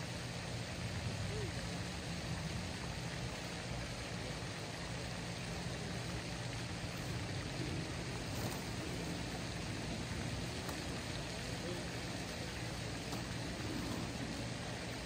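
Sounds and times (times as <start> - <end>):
even hiss: 0.0 - 15.0.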